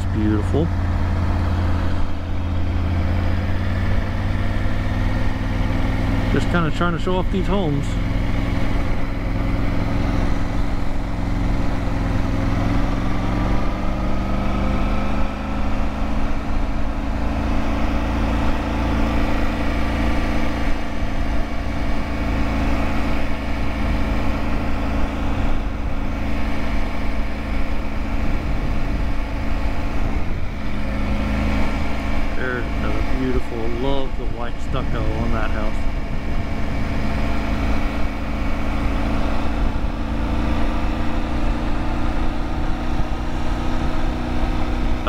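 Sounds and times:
motorcycle engine running: 0.0 - 45.0
wind rumble on microphone: 25.0 - 45.0.

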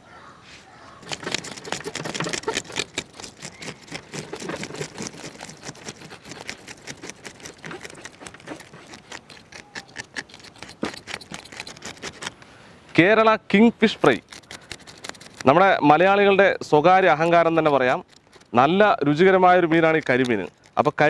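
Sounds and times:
knife scraping fish scales: 1.0 - 12.4, 13.9 - 16.2, 16.8 - 21.0
scales clicking off blade: 17.1 - 21.0.

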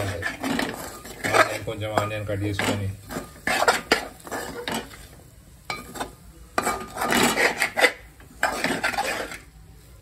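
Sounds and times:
spatula scraping pot: 0.0 - 9.5
spatula clinking against pot: 5.7 - 9.4.

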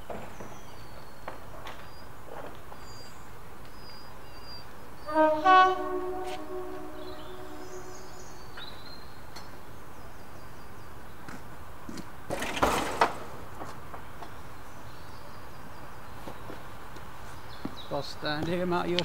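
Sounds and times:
outdoor background noise: 0.0 - 19.0
faint bird chirps: 2.8 - 10.9.

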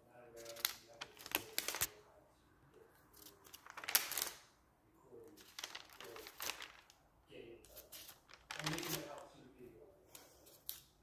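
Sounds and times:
notebook pages rustling: 0.4 - 1.9, 3.1 - 4.5, 5.3 - 7.0, 7.7 - 9.3.

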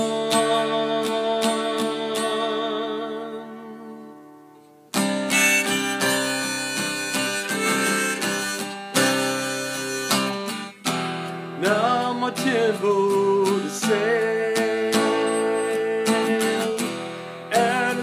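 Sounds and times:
strummed acoustic guitar: 0.0 - 18.0
harmonica: 5.0 - 11.0.

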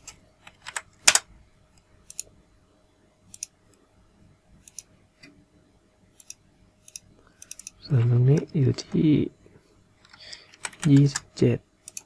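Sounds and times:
computer mouse clicking: 0.0 - 2.3, 3.3 - 3.8, 4.6 - 4.9, 6.2 - 7.8, 10.0 - 12.0.

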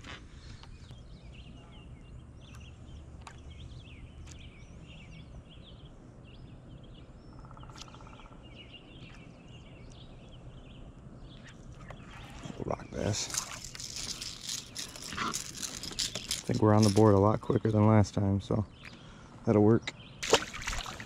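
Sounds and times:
birds chirping and singing: 0.3 - 21.0
buzzy rattle: 13.0 - 17.2.

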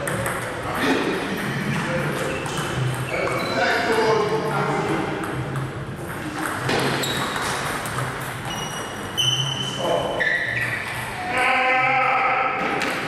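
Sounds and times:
table tennis ball knocking: 0.0 - 4.1, 4.8 - 8.6
short high squeaks: 6.9 - 7.6, 8.4 - 11.3.

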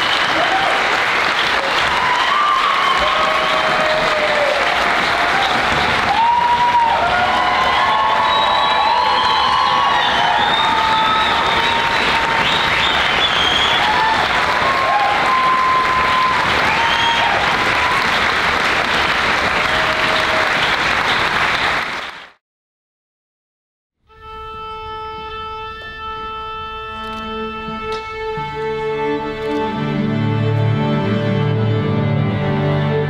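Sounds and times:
audience applauding and cheering: 0.0 - 22.4
orchestra holding sustained notes: 24.1 - 33.0.

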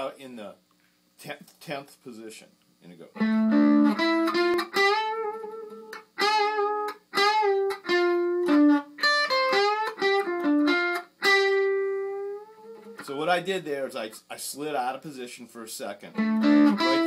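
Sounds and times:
electric guitar lead lick: 3.2 - 13.0, 16.1 - 17.0.

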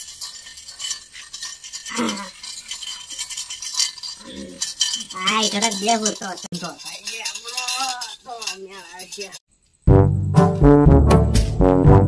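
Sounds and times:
steel plate clinking: 0.0 - 9.5.

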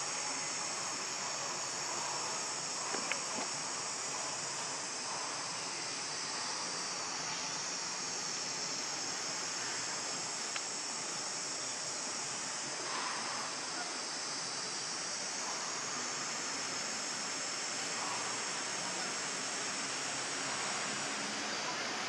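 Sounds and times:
outdoor ambient hiss: 0.0 - 22.0
faint click: 10.5 - 10.7.

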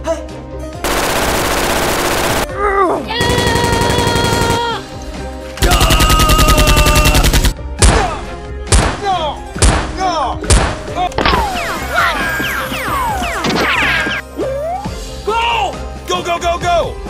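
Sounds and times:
automatic gunfire bursts: 0.8 - 2.5, 3.2 - 4.8, 5.6 - 7.6.

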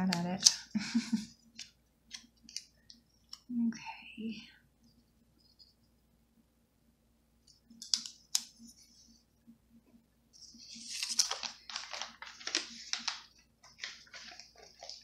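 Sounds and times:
crackly paper rustling: 10.4 - 15.0.

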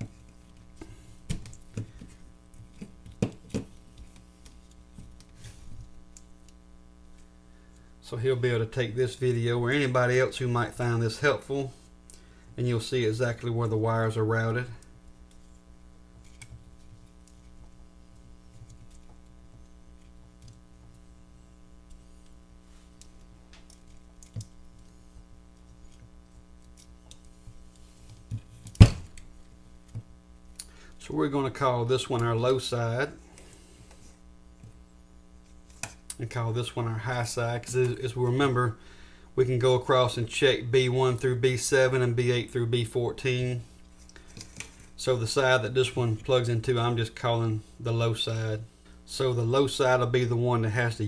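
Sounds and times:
steady low hum: 0.0 - 51.0
wires rustling: 9.1 - 38.6
wires and connectors handling: 16.2 - 21.2, 21.8 - 30.1, 43.8 - 45.0.

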